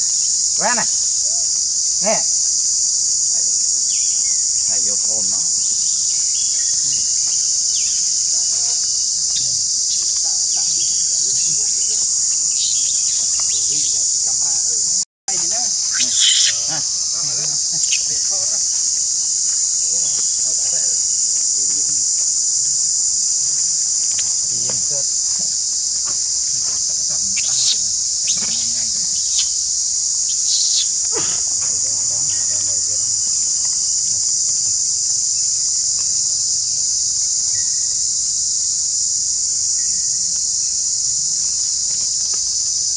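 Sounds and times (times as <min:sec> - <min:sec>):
high-pitched insect chorus: 0:00.0 - 0:42.9
faint squeaky calls: 0:15.8 - 0:18.3, 0:27.3 - 0:29.6, 0:30.2 - 0:31.3.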